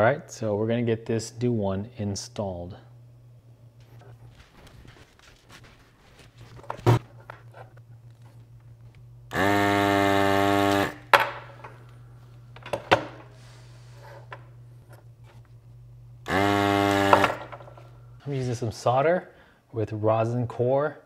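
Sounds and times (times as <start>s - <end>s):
low steady hum: 0.0s - 21.0s
desoldering pump buzzing: 6.5s - 18.4s.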